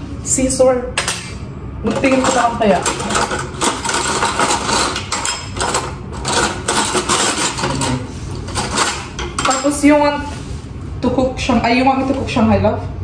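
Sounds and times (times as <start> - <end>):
utensils clattering in dish rack: 1.0 - 10.1.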